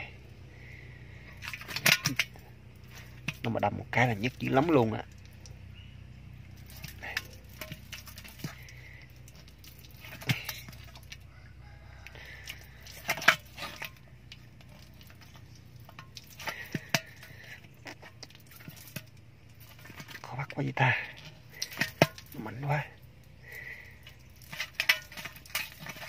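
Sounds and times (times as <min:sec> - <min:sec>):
water sloshing in a jar: 0:00.7 - 0:26.0
sharp splashes and knocks: 0:01.4 - 0:03.5, 0:06.6 - 0:11.2, 0:12.8 - 0:20.3, 0:21.5 - 0:22.6, 0:24.0 - 0:26.0.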